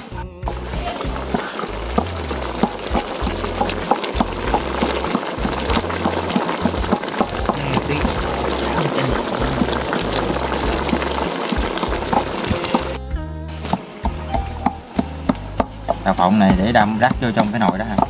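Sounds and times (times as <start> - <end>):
background music with bass: 0.0 - 18.0
pot bubbling at a boil: 0.5 - 13.0, 14.1 - 18.0.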